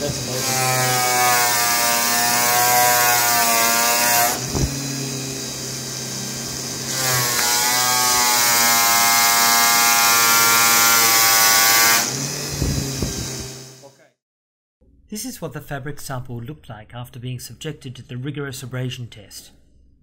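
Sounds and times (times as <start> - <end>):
motor hum: 4.3 - 6.8, 12.2 - 13.8.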